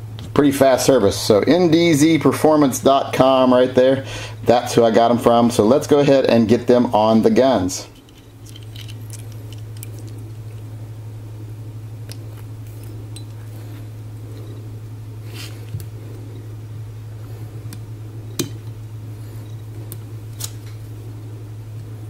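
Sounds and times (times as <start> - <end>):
steady low hum: 0.0 - 22.0
small metal clicks of pistol parts: 8.0 - 10.2.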